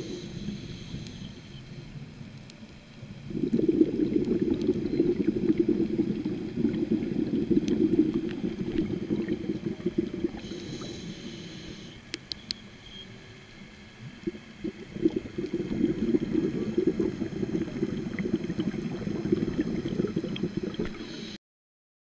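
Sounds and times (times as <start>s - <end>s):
regulator hissing inhale: 0.0s - 1.9s, 10.2s - 12.1s, 20.9s - 21.4s
bubbling underwater exhale: 3.2s - 12.0s, 14.1s - 21.4s.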